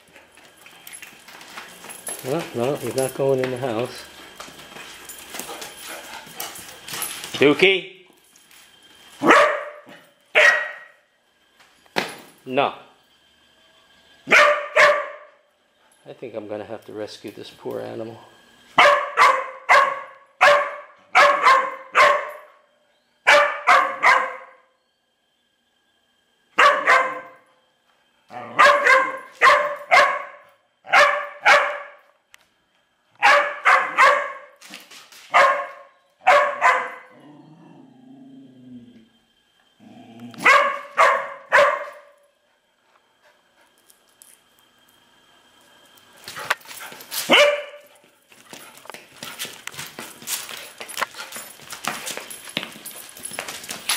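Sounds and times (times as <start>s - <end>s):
dog barking: 9.2s - 11.0s, 14.3s - 15.4s, 18.8s - 22.5s, 23.3s - 24.6s, 26.6s - 27.4s, 28.4s - 32.0s, 33.2s - 34.6s, 35.3s - 37.2s, 40.4s - 42.1s, 47.3s - 47.9s.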